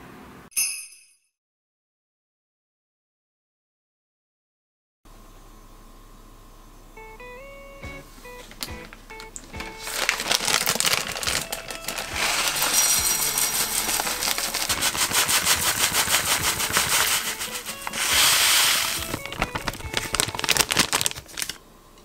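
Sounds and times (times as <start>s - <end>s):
grains pattering on glass: 9.7s - 21.6s.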